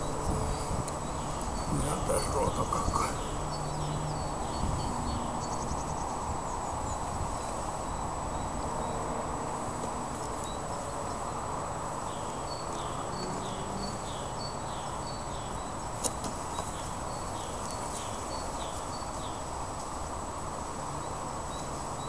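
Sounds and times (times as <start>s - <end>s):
bees buzzing: 0.0s - 6.0s.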